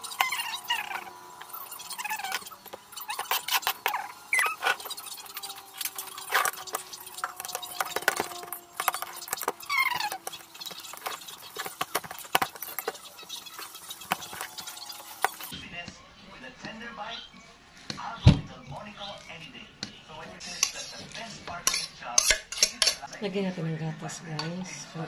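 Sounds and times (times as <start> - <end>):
fork scraping ceramic plate: 0.0 - 15.5, 20.4 - 23.1.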